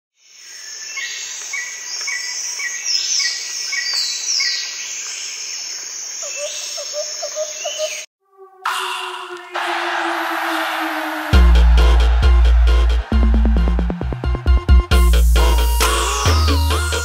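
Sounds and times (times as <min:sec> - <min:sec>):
bird chirps: 0:06.2 - 0:08.1
lower bird calls: 0:06.2 - 0:08.1
electronic music: 0:08.2 - 0:17.0.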